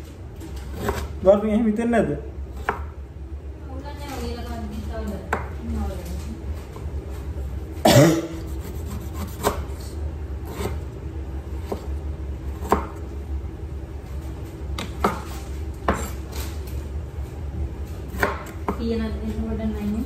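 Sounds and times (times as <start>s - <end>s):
knife rasping through tough skin: 8.4s - 9.8s.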